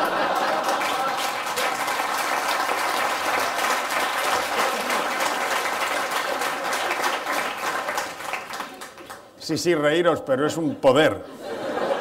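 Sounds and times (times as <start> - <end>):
audience laughing: 0.0 - 1.6, 4.3 - 7.3, 11.2 - 12.0
audience clapping: 0.0 - 9.4.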